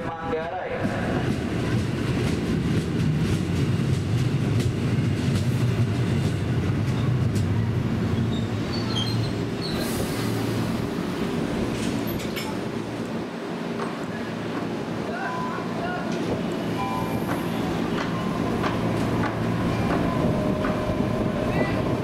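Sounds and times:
train rumbling: 0.0 - 22.0
faint high squeals: 8.2 - 9.9.

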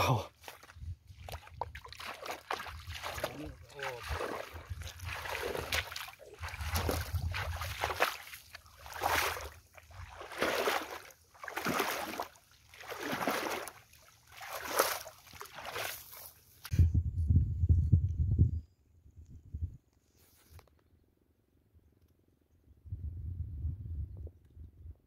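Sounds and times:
footsteps wading through water: 0.0 - 16.7.

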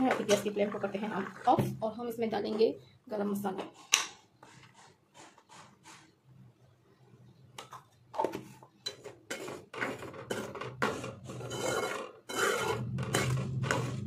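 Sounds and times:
metal spoon scraping a metal pan: 8.8 - 14.0.

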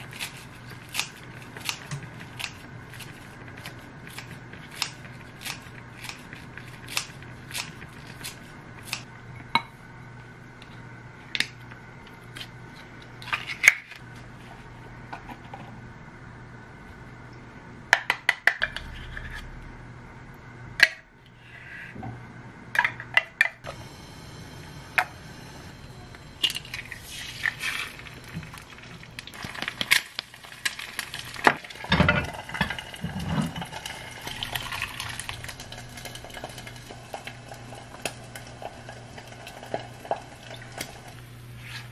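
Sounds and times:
scissors snipping lettuce: 0.0 - 9.0.

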